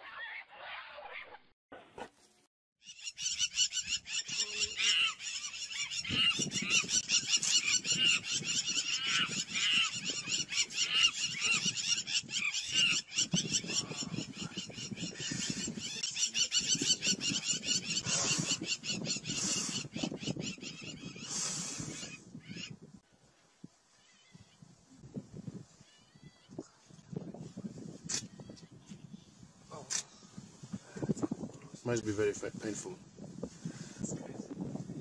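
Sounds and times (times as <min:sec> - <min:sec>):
high-pitched animal cries: 0:02.8 - 0:14.5.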